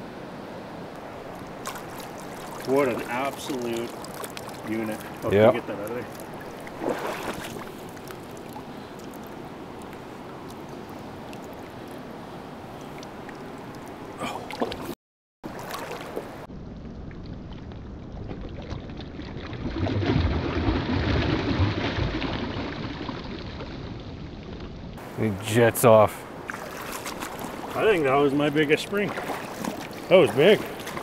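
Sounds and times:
river water running over gravel: 0:01.0 - 0:16.5, 0:25.0 - 0:31.0
fish splashing in water: 0:01.3 - 0:12.0, 0:12.8 - 0:16.5, 0:17.5 - 0:23.8, 0:26.3 - 0:27.9, 0:28.9 - 0:31.0.

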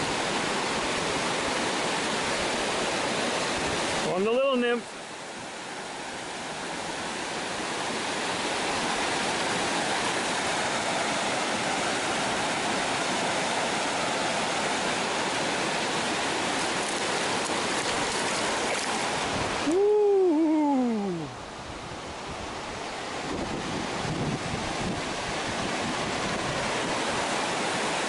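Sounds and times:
water rushing over weir: 0:00.0 - 0:28.0
fish splashing at surface: 0:16.7 - 0:19.2.

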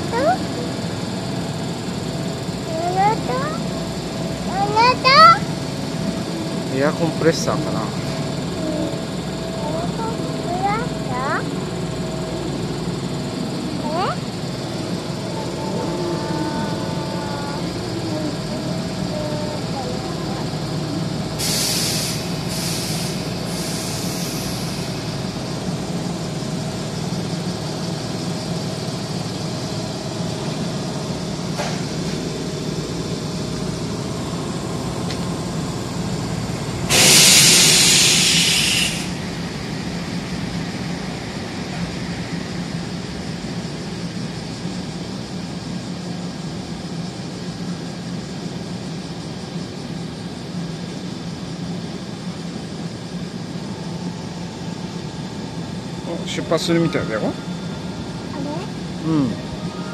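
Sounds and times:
train machinery hum: 0:00.0 - 0:59.9
compressed air hisses: 0:21.4 - 0:25.3, 0:36.9 - 0:39.4
loud air release: 0:21.4 - 0:25.3, 0:36.8 - 0:39.4.

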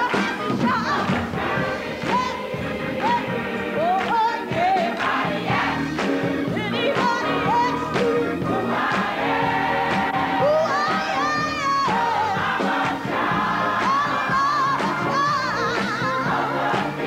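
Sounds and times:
woman singing lead: 0:00.0 - 0:08.8, 0:09.9 - 0:17.0
church choir singing: 0:00.0 - 0:17.0
drums: 0:00.0 - 0:17.0.

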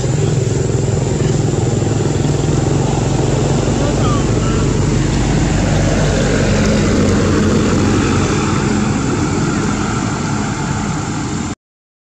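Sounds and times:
engine running with low hum: 0:00.0 - 0:11.6.

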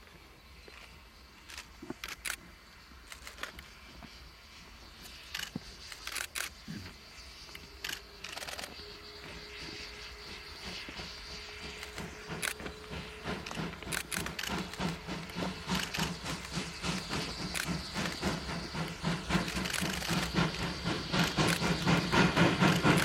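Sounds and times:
distant steam locomotive exhaust: 0:00.0 - 0:23.0
sharp clicks: 0:05.2 - 0:06.6, 0:11.7 - 0:12.7, 0:13.3 - 0:23.0.

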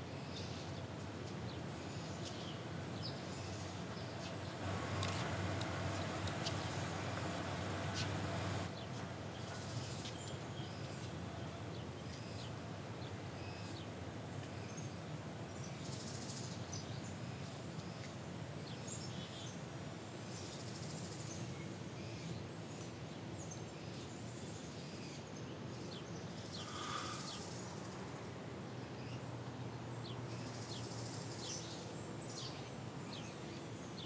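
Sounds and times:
steady background hiss: 0:00.0 - 0:34.0
small birds chirping: 0:00.2 - 0:15.0, 0:20.4 - 0:28.0, 0:30.0 - 0:34.0.

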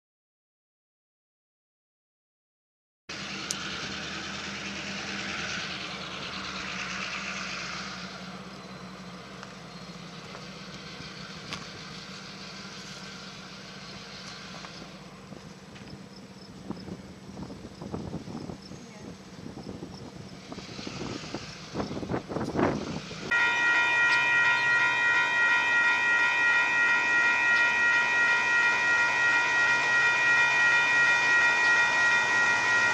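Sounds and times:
engine humming: 0:03.1 - 0:32.9
hiss: 0:20.4 - 0:22.0.

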